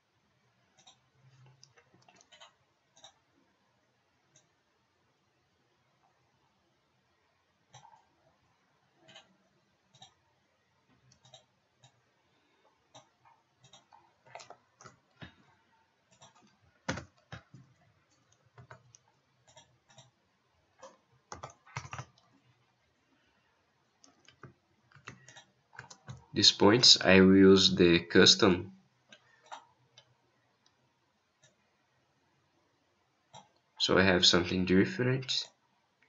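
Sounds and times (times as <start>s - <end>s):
keyboard and mouse clicking: 0.7s - 3.2s, 7.7s - 8.1s, 9.0s - 9.3s, 9.9s - 10.2s, 11.0s - 12.0s, 12.9s - 15.4s, 16.1s - 20.2s, 20.8s - 22.3s, 24.0s - 26.4s.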